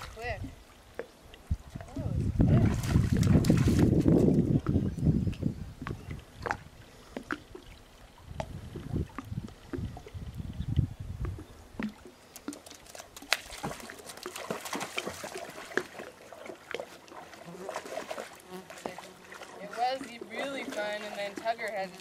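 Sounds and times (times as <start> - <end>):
low rumbling: 1.5 - 11.8
dogs splashing in water: 1.7 - 4.5, 11.4 - 22.0.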